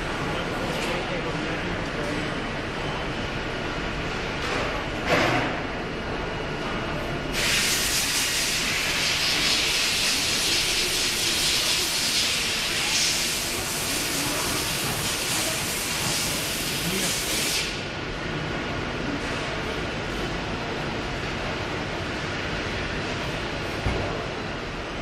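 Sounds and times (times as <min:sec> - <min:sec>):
machine hissing: 0:07.3 - 0:17.8.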